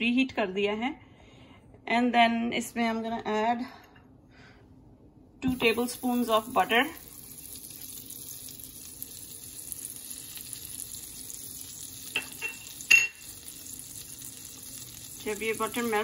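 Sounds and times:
butter sizzling in a frying pan: 5.5 - 16.0.

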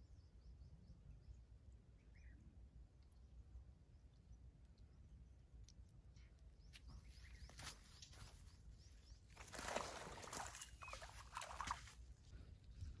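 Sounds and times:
water splashing and dripping: 9.3 - 12.1.

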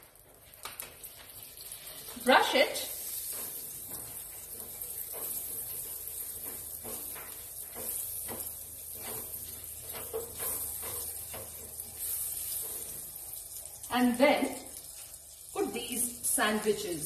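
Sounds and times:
butter sizzling in pan: 0.0 - 17.0
basting brush sweeping pan: 1.6 - 13.6.

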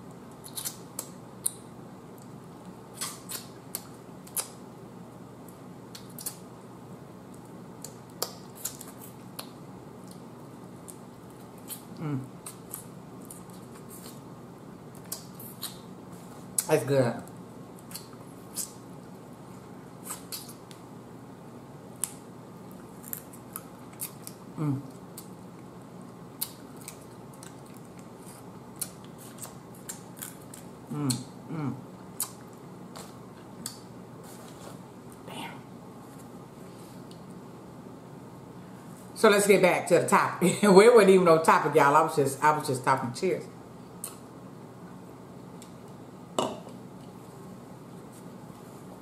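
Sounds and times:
person humming: 12.0 - 12.4, 24.6 - 25.0, 30.9 - 31.8.

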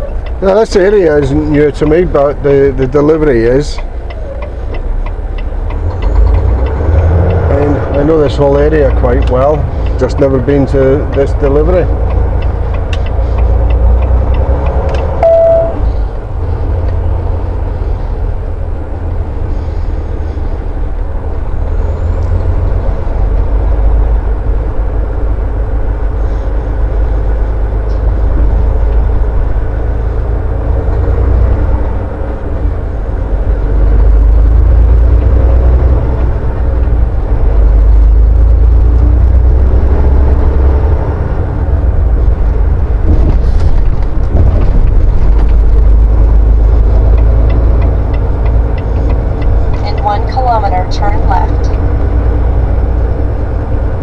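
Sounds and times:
truck diesel engine rumble: 0.0 - 54.0
short beep: 15.2 - 16.0.

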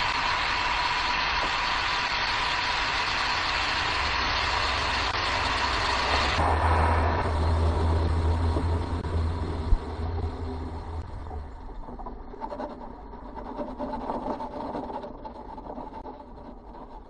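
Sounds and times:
rocket rumble and rushing: 0.0 - 12.0
rough rattle: 0.0 - 17.0.

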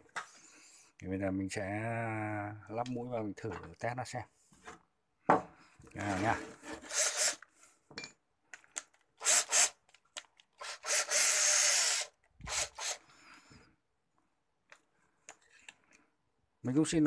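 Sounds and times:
scraping of drill chuck sleeve: 6.0 - 7.5.

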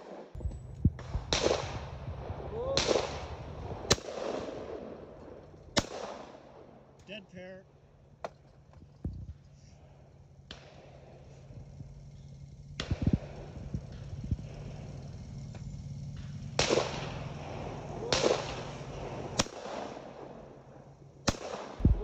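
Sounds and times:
shotgun bangs: 1.0 - 2.0, 2.8 - 6.8, 16.5 - 20.4, 21.2 - 22.0.

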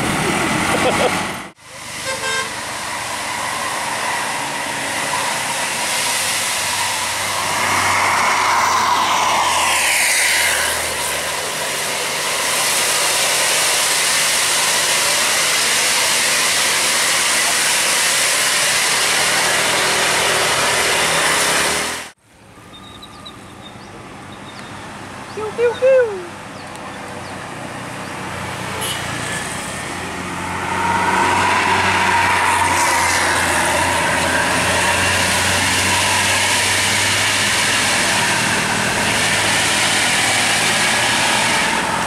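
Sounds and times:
bus engine and road noise: 0.0 - 42.0
bus horn: 2.0 - 2.6, 28.7 - 29.4.

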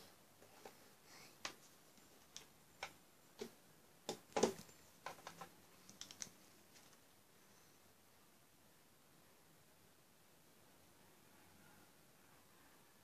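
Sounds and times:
plastic dolls tapping and clicking: 1.4 - 7.0.

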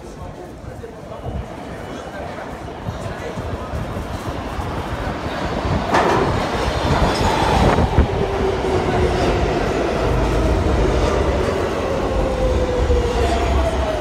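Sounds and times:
subway train rumbling on rails: 0.0 - 14.0
clacks of rail joints: 5.9 - 7.3.

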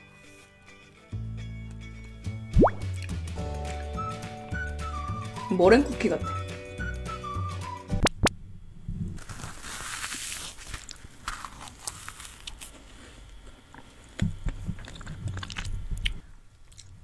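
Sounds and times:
crunching and chewing: 9.2 - 17.0.

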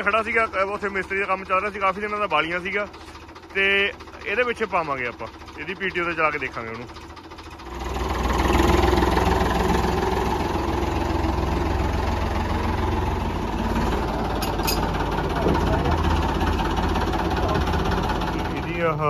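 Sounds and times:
tractor engine running: 0.0 - 19.0.

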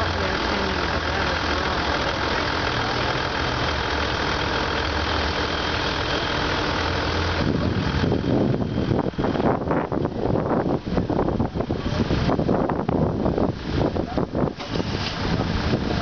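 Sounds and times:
vehicle engine idling: 0.0 - 16.0
wind buffeting microphone: 7.3 - 16.0.

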